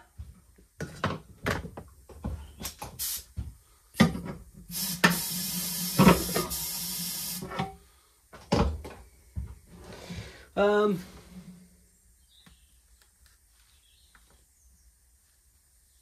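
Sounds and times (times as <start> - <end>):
steady hiss: 2.6 - 8.3.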